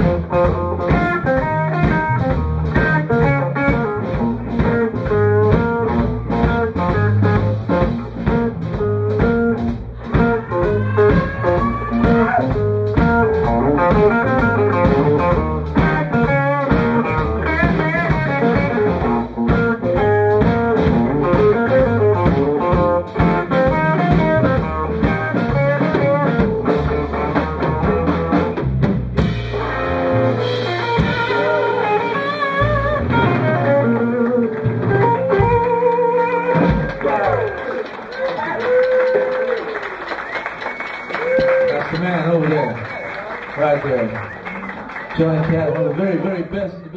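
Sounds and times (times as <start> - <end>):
lead guitar bending notes: 0.0 - 37.1
electric blues band playing: 0.0 - 46.9.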